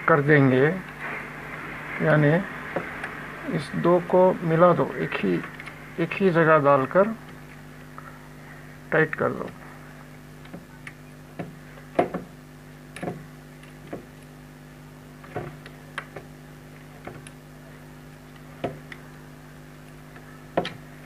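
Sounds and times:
wires clicking and tapping: 10.3s - 14.4s, 15.2s - 21.0s.

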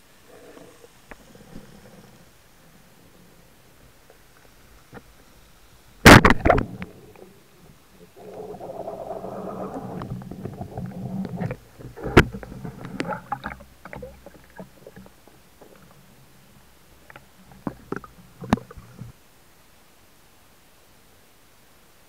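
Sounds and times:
speargun crack underwater: 6.1s - 7.0s.

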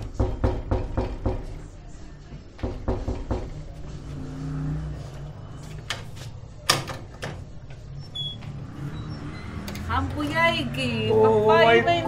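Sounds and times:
knocks on glass door: 0.0s - 1.5s, 2.6s - 3.6s
vehicle engine hum: 7.5s - 12.0s.

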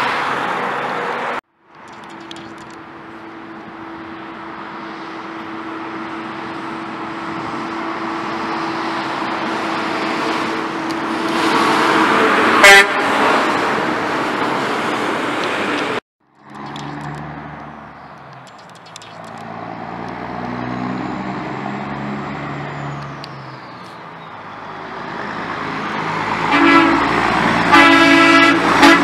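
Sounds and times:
dump trucks passing: 0.0s - 29.0s
truck horn blast: 11.2s - 13.5s, 26.4s - 29.0s.

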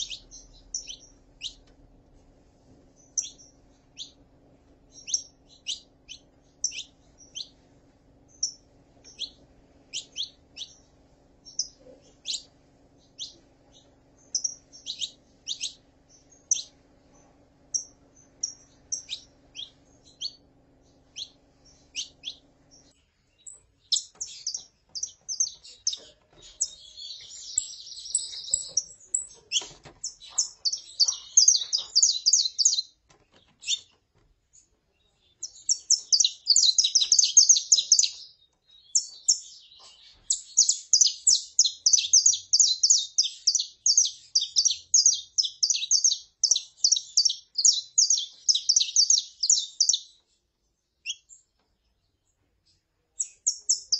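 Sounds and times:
finch song rapid high chirping: 0.0s - 1.8s, 2.8s - 53.9s
finch calls: 0.0s - 1.9s, 2.9s - 7.6s, 8.2s - 50.3s, 51.0s - 51.5s, 53.2s - 53.9s.

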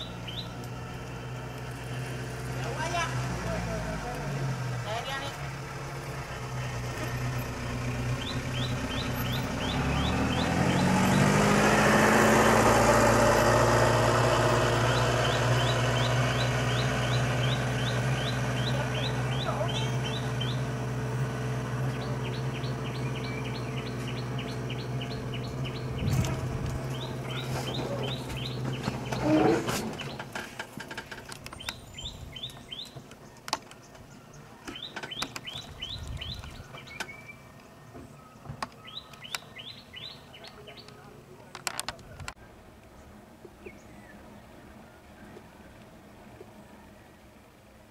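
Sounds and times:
bird chirping: 0.0s - 0.6s, 7.0s - 11.6s, 14.6s - 20.8s, 21.8s - 30.5s, 31.3s - 41.2s, 42.0s - 45.8s
vehicle engine idling and revving: 0.0s - 47.9s.

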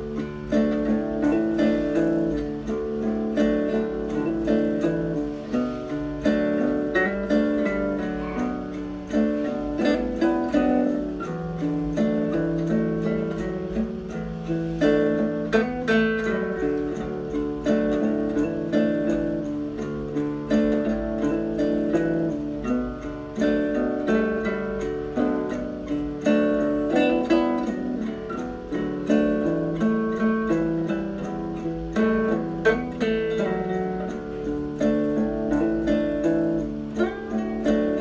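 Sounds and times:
acoustic guitar music: 0.0s - 38.0s.

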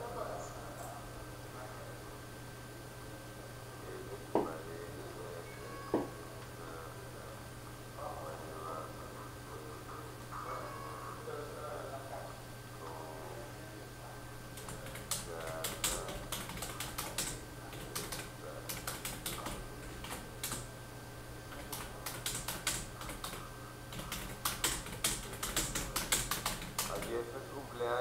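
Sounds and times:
typing on computer keyboard: 14.6s - 20.7s, 21.5s - 27.1s.

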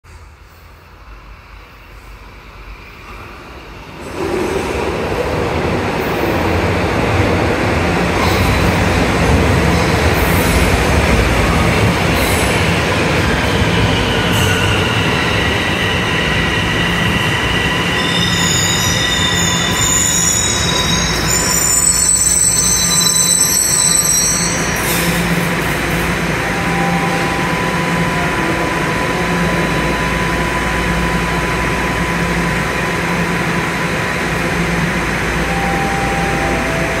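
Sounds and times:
subway train rumbling: 0.0s - 37.0s
train hum with thin whine: 0.1s - 37.0s
train brakes squealing: 11.4s - 30.2s.

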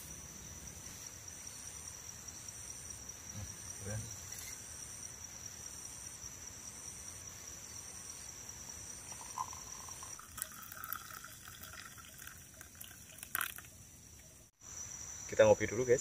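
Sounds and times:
insects chirping: 0.0s - 16.0s
hot liquid pouring into metal mug: 9.1s - 13.7s
pot clinking: 9.1s - 13.7s.

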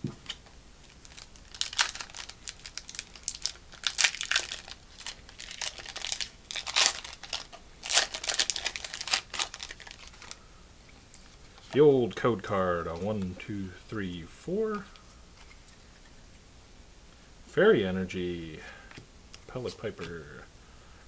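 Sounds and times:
foil wrapper crinkling and tearing: 0.8s - 10.4s.

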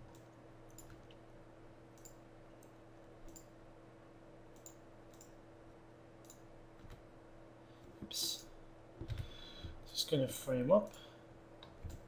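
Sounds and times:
computer mouse clicks: 0.0s - 1.2s, 2.0s - 3.5s, 4.5s - 5.4s, 6.2s - 7.0s, 11.6s - 12.0s
low electrical hum: 0.0s - 12.0s.

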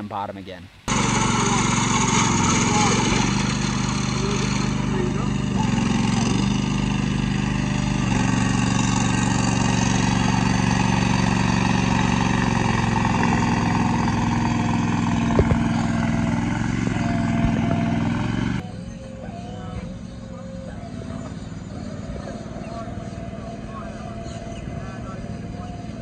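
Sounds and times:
boat engine running: 0.9s - 26.0s
sharp knocks: 15.2s - 15.8s.

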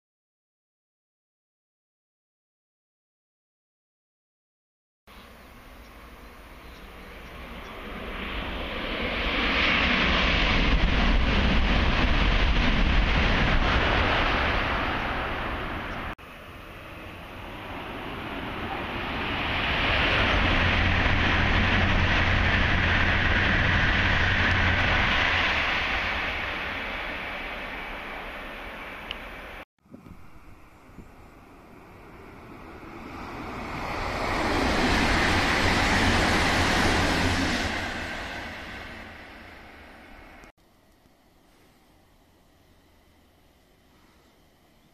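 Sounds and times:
high-speed train passing: 5.1s - 40.5s.

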